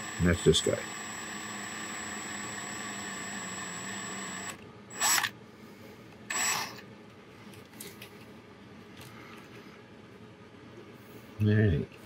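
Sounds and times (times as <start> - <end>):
power drill whining: 0.0 - 5.3, 6.3 - 6.8.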